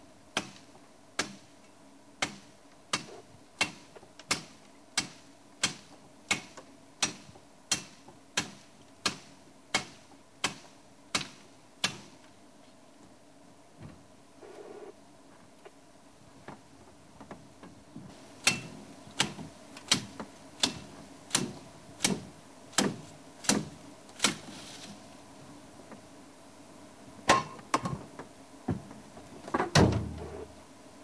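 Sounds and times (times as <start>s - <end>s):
machete chopping branch: 0.4s - 1.5s, 2.2s - 12.2s, 18.4s - 25.0s.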